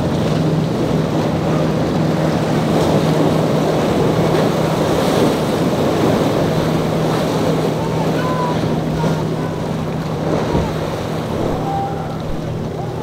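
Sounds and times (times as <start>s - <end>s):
outboard motor droning: 0.0s - 13.0s
water rushing and splashing: 0.0s - 13.0s
wind on microphone: 10.0s - 13.0s
hull pounding through chop: 11.3s - 13.0s.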